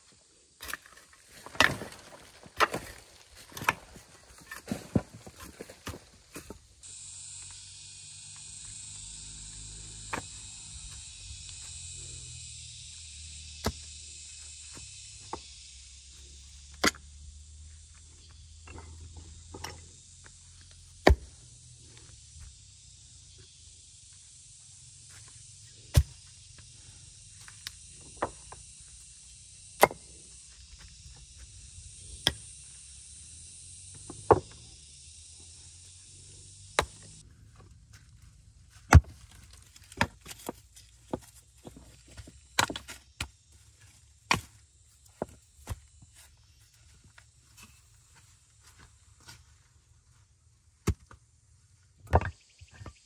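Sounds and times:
steady high hiss: 0:06.3 - 0:16.4.

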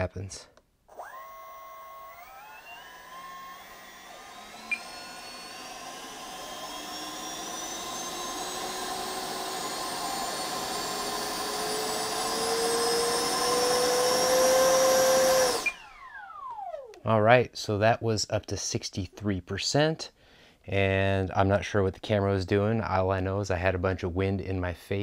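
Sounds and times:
electric fan whine: 0:00.9 - 0:17.1.

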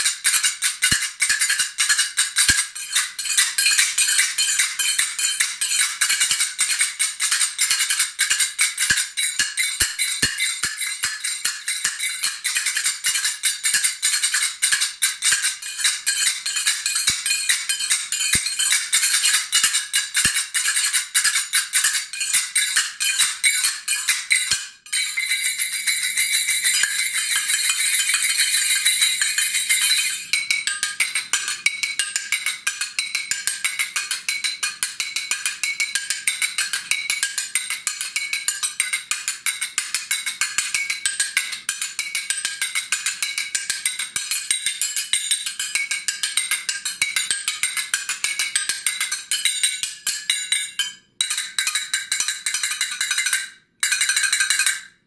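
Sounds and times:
finger cymbals clicking: 0:00.0 - 0:49.8.

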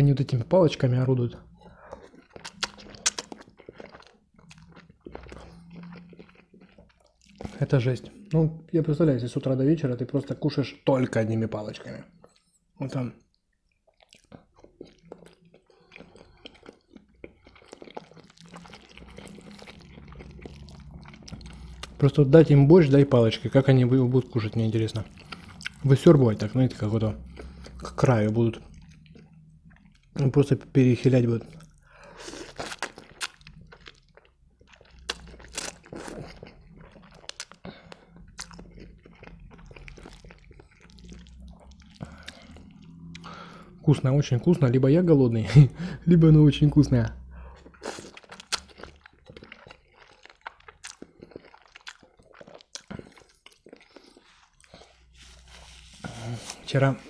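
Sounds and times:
wet chewing mouth clicks: 0:01.6 - 0:07.7, 0:13.3 - 0:22.2, 0:23.3 - 0:30.7, 0:31.3 - 0:43.8, 0:47.5 - 0:55.8.

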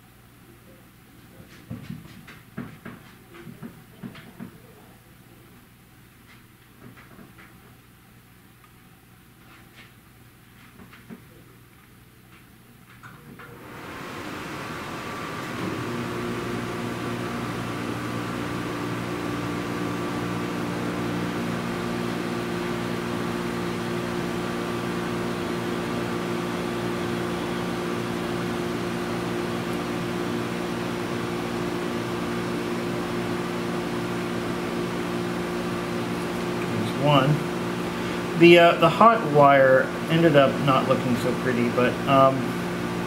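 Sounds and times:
soldering gun humming: 0:13.4 - 0:39.4.

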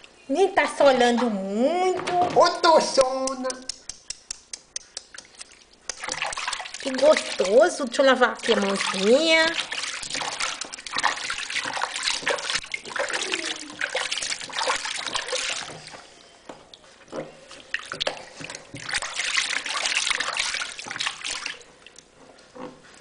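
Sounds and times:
bath water splashing and trickling: 0:05.0 - 0:22.8.

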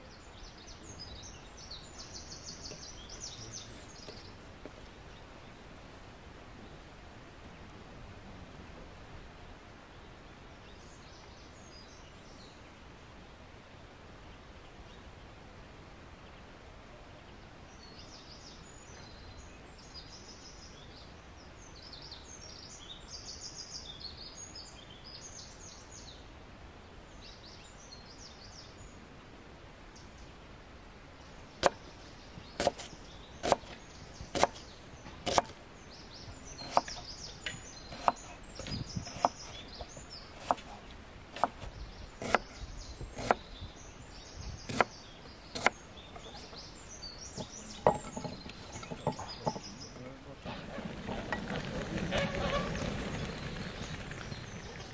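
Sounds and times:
birds chirping: 0:00.0 - 0:07.8, 0:16.2 - 0:26.2, 0:27.1 - 0:54.9
steady background hiss: 0:00.0 - 0:54.9
knife chopping on wooden board: 0:32.6 - 0:33.8, 0:34.4 - 0:34.6, 0:35.2 - 0:35.6, 0:36.6 - 0:37.0, 0:37.9 - 0:42.6, 0:43.2 - 0:43.4, 0:44.7 - 0:44.9, 0:45.6 - 0:46.6, 0:47.4 - 0:49.6.

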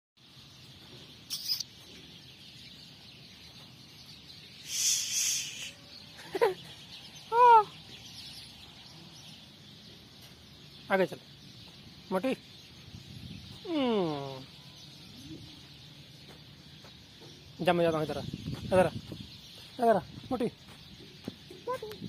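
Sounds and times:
hissing noise: 0:04.6 - 0:05.8.

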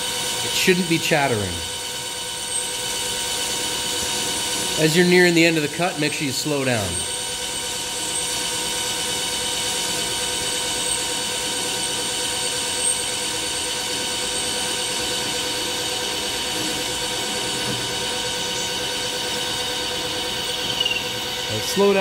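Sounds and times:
metal lathe humming: 0:00.0 - 0:22.0.

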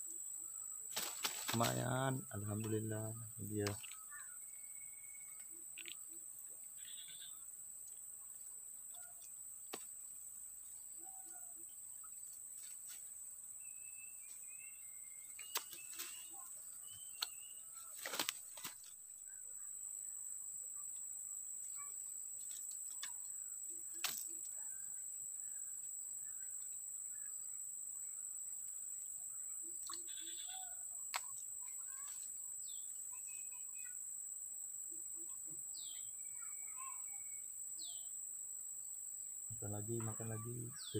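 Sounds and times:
high-pitched insect drone: 0:00.9 - 0:06.2, 0:06.8 - 0:07.5, 0:29.6 - 0:34.1, 0:34.9 - 0:38.2, 0:39.5 - 0:40.9
birds chirping: 0:01.0 - 0:06.2, 0:13.6 - 0:18.9.

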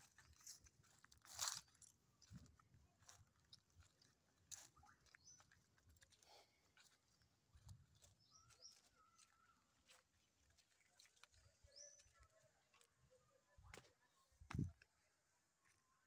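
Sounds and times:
footsteps crunching dry leaves: 0:00.0 - 0:07.0, 0:07.6 - 0:11.2.

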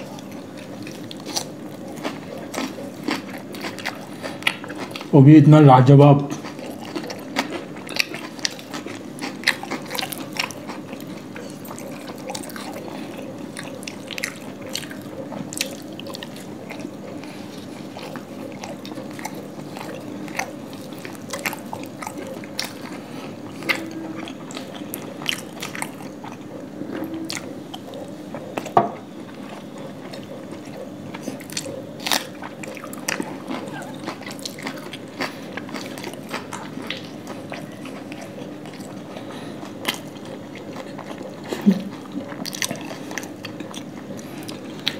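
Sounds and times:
people chewing food: 0:00.0 - 0:44.9
steady low hum: 0:00.0 - 0:44.9.

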